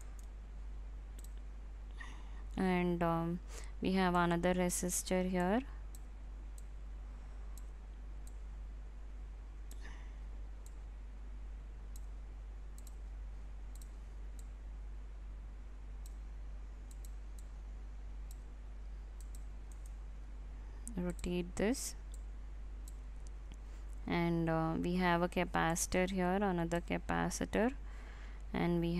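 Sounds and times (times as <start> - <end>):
computer mouse clicks: 0.0 - 0.4, 1.2 - 1.5, 12.7 - 13.0, 13.7 - 14.5, 16.8 - 17.6, 19.2 - 20.0.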